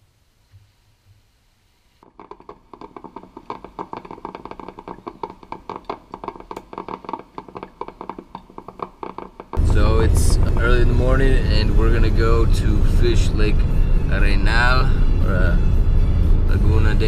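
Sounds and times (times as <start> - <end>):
coffee maker gurgling and sputtering: 2.0 - 9.8
steady low hum: 9.6 - 17.0.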